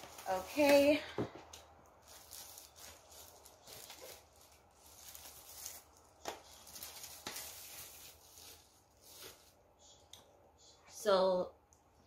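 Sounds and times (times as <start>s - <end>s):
plastic wrapping rustling: 0.0s - 9.6s.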